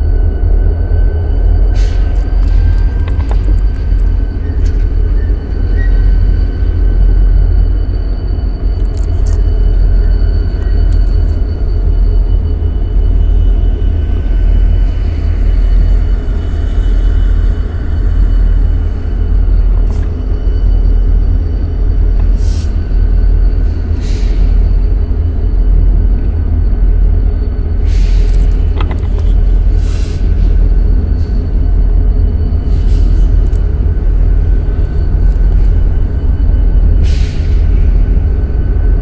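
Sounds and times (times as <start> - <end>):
freight train rumbling past: 9.4 - 39.0.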